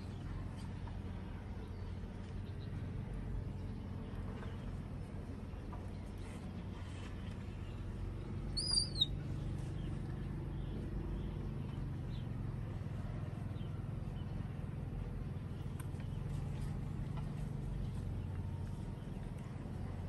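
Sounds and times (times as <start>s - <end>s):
faint short chirps: 8.5s - 9.2s.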